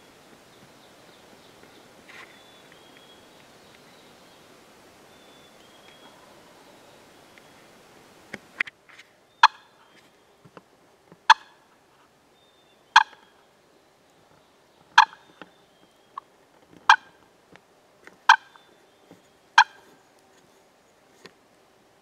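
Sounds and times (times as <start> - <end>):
turkey clucking: 9.4 - 9.8, 11.3 - 11.6, 12.9 - 13.3, 15.0 - 15.5, 16.9 - 17.2, 18.3 - 18.7, 19.6 - 19.9.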